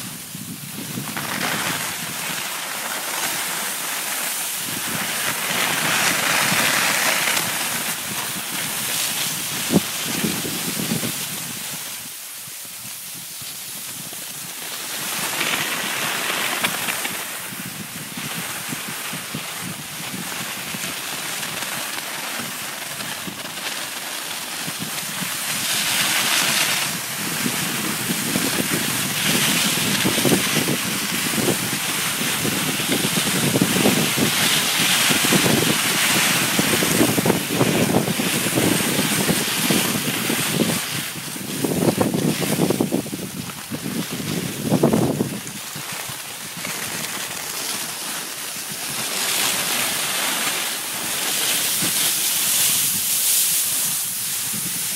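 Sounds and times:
skis scraping over snow: 0:00.0 - 0:54.9
wind on microphone: 0:00.0 - 0:54.9.

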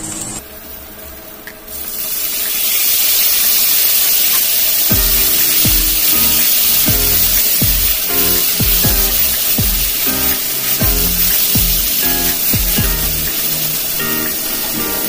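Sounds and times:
beef sizzling in hot oil: 0:00.2 - 0:15.0
background music with thumping beat: 0:04.9 - 0:15.0.

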